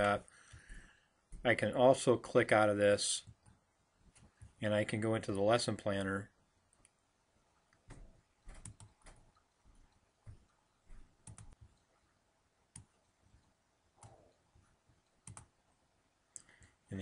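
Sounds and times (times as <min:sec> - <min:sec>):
faint computer mouse clicks: 0:11.2 - 0:11.9.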